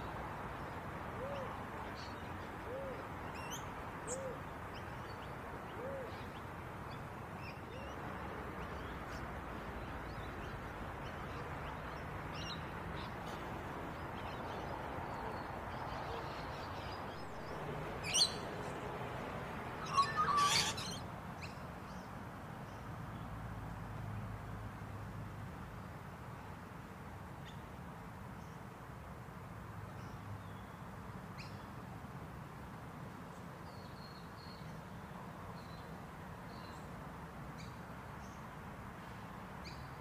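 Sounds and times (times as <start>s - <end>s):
low hooting bird call: 19.8s - 21.0s
shrill bird screeches: 19.8s - 21.0s.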